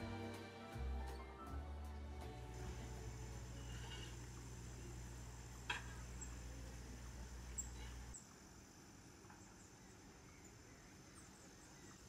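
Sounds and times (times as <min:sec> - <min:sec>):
low hum: 0:00.0 - 0:08.4.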